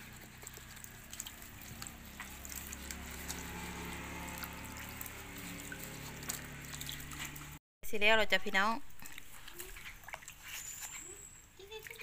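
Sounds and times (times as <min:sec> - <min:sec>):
small splashes: 0:00.0 - 0:07.6, 0:08.9 - 0:12.0
sponge scrubbing: 0:00.0 - 0:07.6
water sloshing in a plastic basin: 0:00.0 - 0:07.6, 0:08.6 - 0:12.0.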